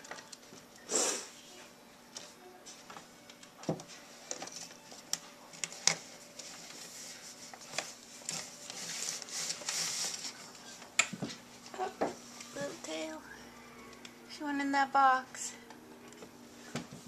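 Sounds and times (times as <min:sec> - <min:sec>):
animal rustling through plastic bags: 0:04.9 - 0:10.8.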